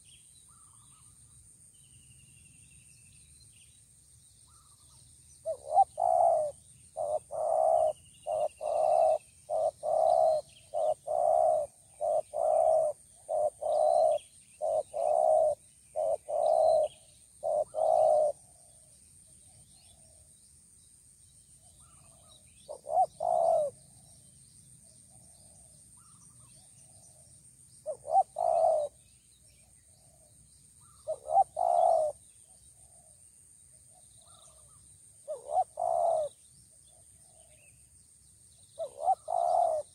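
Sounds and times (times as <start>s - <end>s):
doves cooing: 5.4s - 18.6s, 22.7s - 23.9s, 27.8s - 29.0s, 30.8s - 32.2s, 35.3s - 36.3s, 38.8s - 39.9s.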